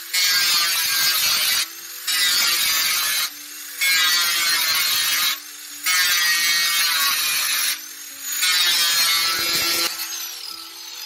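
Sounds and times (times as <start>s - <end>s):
angle grinder cutting metal: 0.0s - 11.0s
grinder motor hum: 7.0s - 11.0s.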